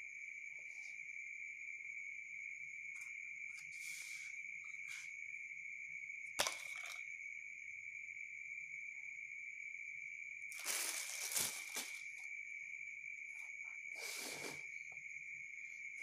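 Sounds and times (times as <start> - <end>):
crickets chirring: 0.0 - 16.0
crinkling rustle: 10.5 - 12.3.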